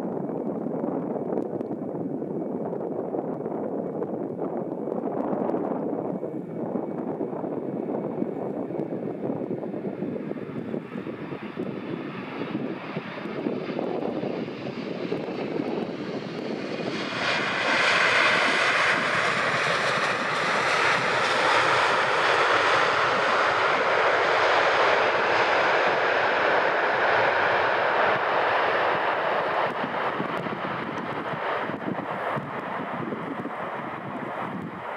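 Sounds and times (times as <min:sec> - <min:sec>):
jet engines rumbling and rushing: 0:00.0 - 0:34.9.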